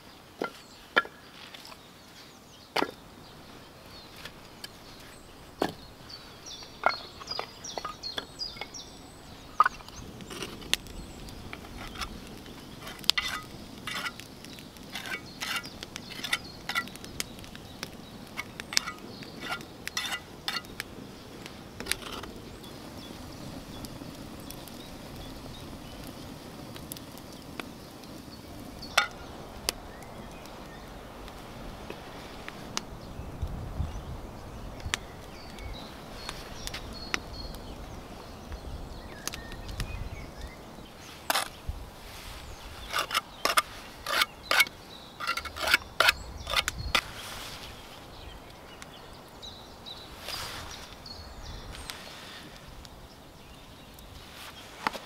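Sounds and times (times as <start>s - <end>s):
birds calling: 0.0s - 55.0s
campfire crackling and popping: 0.0s - 55.0s
axe splitting firewood: 9.6s - 20.9s, 42.8s - 47.1s.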